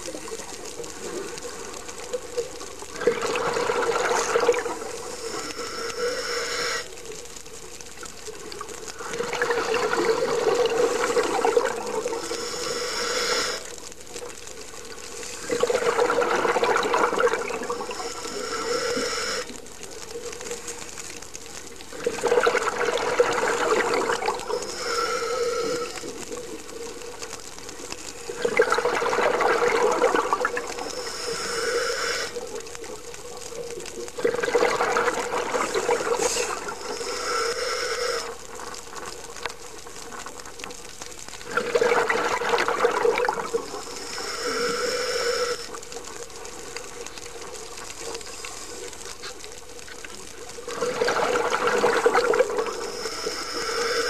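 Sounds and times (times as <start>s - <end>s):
exhaled bubbles rushing: 0.9s - 5.5s, 8.9s - 12.6s, 15.3s - 18.6s, 21.8s - 24.8s, 28.3s - 31.0s, 34.1s - 37.2s, 41.4s - 44.2s, 50.5s - 53.1s
scuba regulator hiss: 3.4s - 7.2s, 9.4s - 13.9s, 17.1s - 19.6s, 23.4s - 26.8s, 30.2s - 32.5s, 35.5s - 38.4s, 43.5s - 46.7s, 48.0s - 49.4s, 52.0s - 54.0s.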